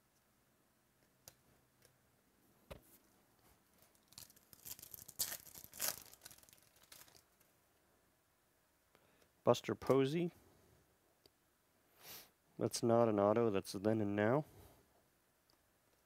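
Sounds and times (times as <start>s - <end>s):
foil wrapper tearing and crinkling: 3.8s - 7.5s.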